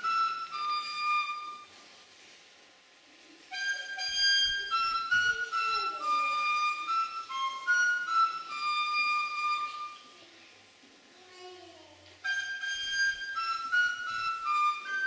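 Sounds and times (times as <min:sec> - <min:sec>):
wooden flute playing folk tune: 0:00.0 - 0:02.0, 0:03.5 - 0:10.2, 0:12.2 - 0:15.0.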